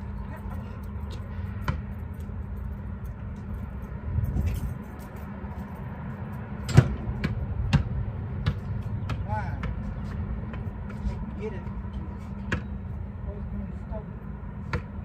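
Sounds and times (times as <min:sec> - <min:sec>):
steady low rumble: 0:00.0 - 0:15.0
basketball bouncing on asphalt: 0:01.1 - 0:02.5, 0:06.7 - 0:13.0, 0:14.5 - 0:15.0.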